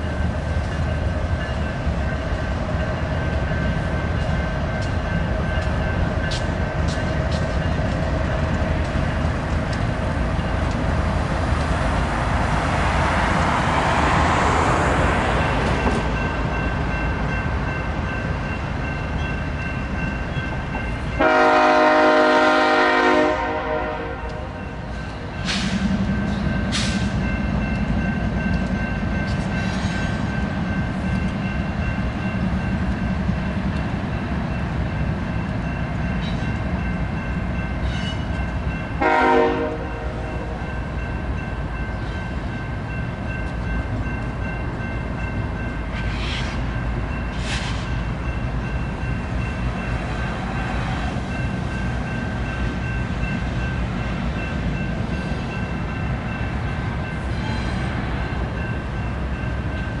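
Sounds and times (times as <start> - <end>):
freight train rumbling on rails: 0.0 - 60.0
train horn blast: 21.2 - 24.6, 39.0 - 40.5.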